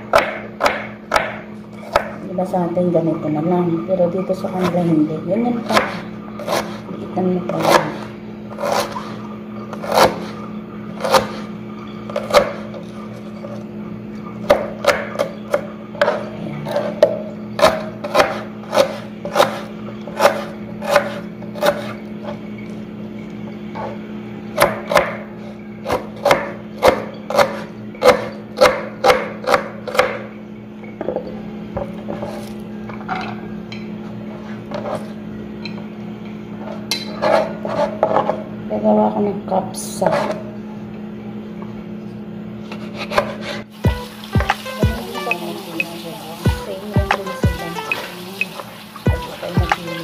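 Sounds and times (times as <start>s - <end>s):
knife chopping tomatoes: 0.0s - 2.2s, 5.6s - 6.8s, 12.1s - 12.7s, 14.4s - 22.0s, 24.6s - 30.2s.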